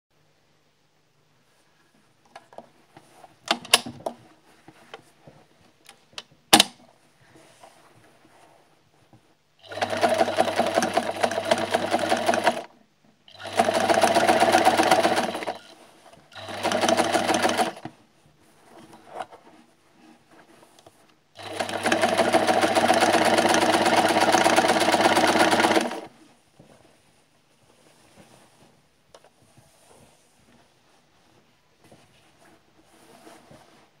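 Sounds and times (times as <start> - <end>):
sewing machine stitching: 9.6 - 12.7, 13.3 - 17.9, 21.4 - 26.1.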